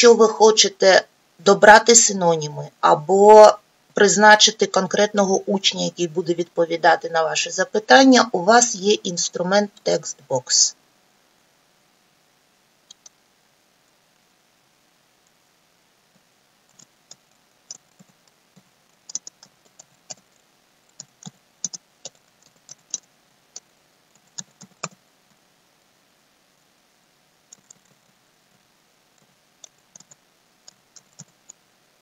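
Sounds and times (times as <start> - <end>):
keyboard typing clicks: 16.7 - 20.2, 20.9 - 25.0, 27.5 - 28.1, 29.2 - 31.6.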